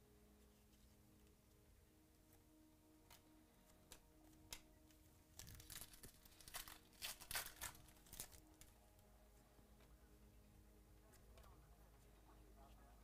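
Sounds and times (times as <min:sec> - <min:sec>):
foil wrapper crinkling and tearing: 0:05.4 - 0:08.7.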